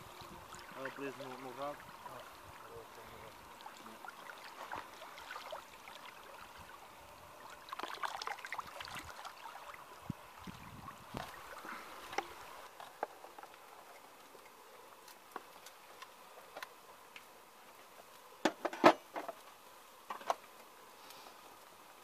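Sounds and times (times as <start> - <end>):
water splashing and sloshing: 0.0 - 16.7
small clicks and knocks: 14.4 - 17.3, 18.4 - 20.7.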